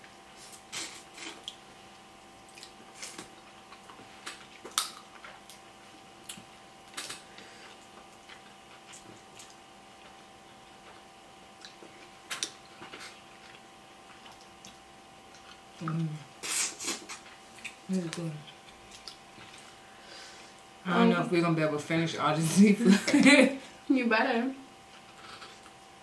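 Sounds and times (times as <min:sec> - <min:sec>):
faint hum: 0:00.0 - 0:26.0
wet chewing: 0:06.2 - 0:11.0, 0:11.6 - 0:19.8.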